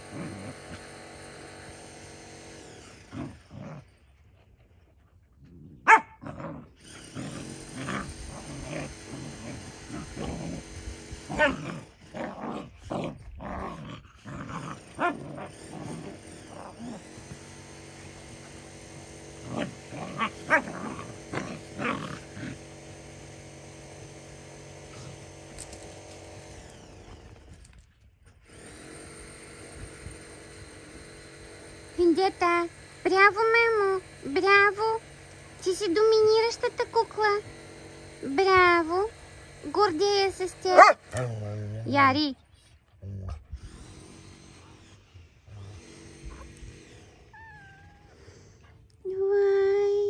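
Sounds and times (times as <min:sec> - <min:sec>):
dogs growling and snarling: 0:00.0 - 0:32.6, 0:33.2 - 0:49.1
dog barking: 0:05.8 - 0:06.2, 0:40.8 - 0:41.0.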